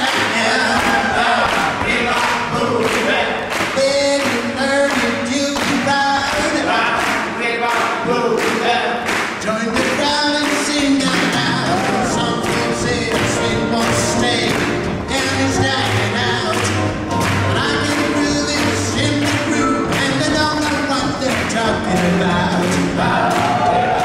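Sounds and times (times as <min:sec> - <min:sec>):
swing band playing: 0:00.0 - 0:06.8, 0:09.1 - 0:24.0
person singing: 0:00.0 - 0:24.0.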